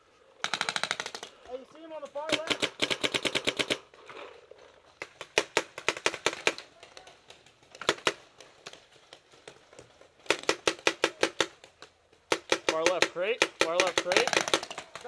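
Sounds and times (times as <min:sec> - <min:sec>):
paintball markers firing: 0:02.1 - 0:03.9, 0:05.0 - 0:08.8, 0:10.2 - 0:15.0.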